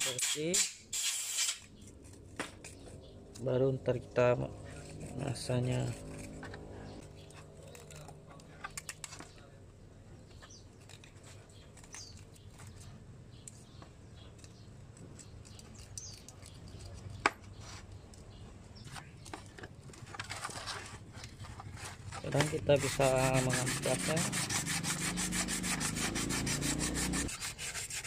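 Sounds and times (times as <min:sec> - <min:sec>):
sandpaper rubbing on metal: 0:00.0 - 0:01.7, 0:04.6 - 0:07.0, 0:21.7 - 0:28.0
hand tool scraping metal: 0:00.0 - 0:02.9, 0:04.6 - 0:07.9, 0:20.1 - 0:28.0.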